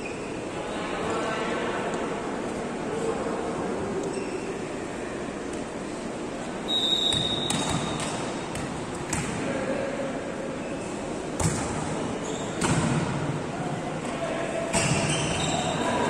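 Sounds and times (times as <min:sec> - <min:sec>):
referee's whistle blast: 0:06.7 - 0:07.7.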